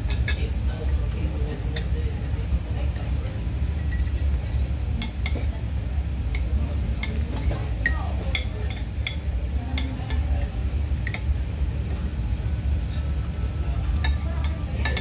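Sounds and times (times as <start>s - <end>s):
steady low rumble: 0.0s - 14.9s
cutlery clinking on dishes: 6.3s - 10.3s, 14.0s - 15.0s.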